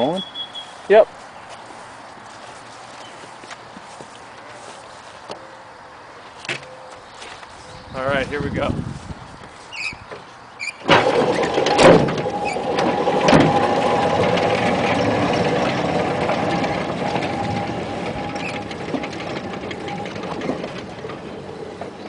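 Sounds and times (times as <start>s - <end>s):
chain clanking taut: 10.8s - 22.0s
wheels rumbling on rail: 10.8s - 22.0s
electric locomotive whine: 10.9s - 22.0s.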